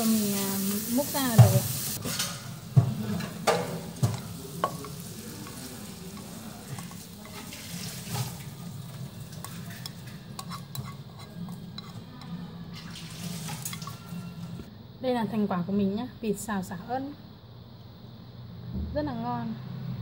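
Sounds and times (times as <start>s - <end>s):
chopsticks scraping frying pan: 3.2s - 12.3s, 13.2s - 14.6s.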